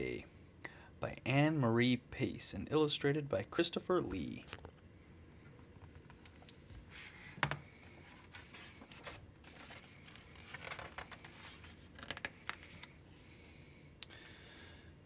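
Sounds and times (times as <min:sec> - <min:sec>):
book pages rustling: 0:05.9 - 0:12.9.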